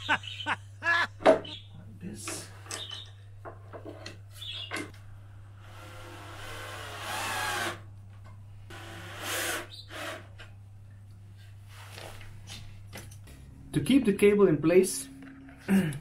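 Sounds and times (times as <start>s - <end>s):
steady low hum: 10.6s - 16.0s.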